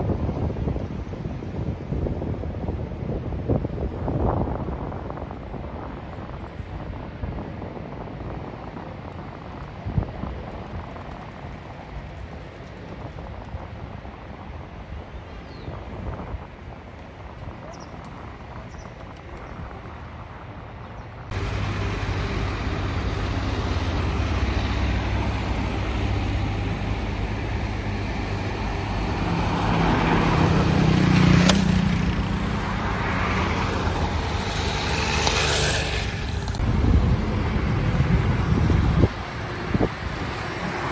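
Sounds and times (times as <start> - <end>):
low engine hum of traffic: 0.1 - 40.9
vehicles passing: 14.0 - 40.9.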